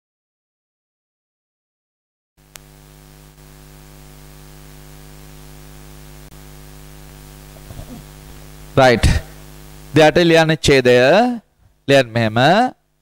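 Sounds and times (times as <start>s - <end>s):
electrical mains hum: 2.4s - 13.0s
microphone hiss: 2.4s - 13.0s
faint click: 2.5s - 2.7s.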